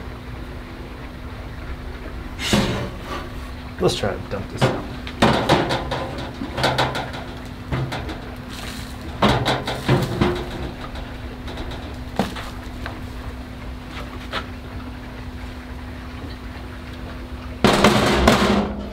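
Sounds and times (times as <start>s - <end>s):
metal grill clanking and knocking: 2.4s - 14.6s, 17.6s - 18.9s.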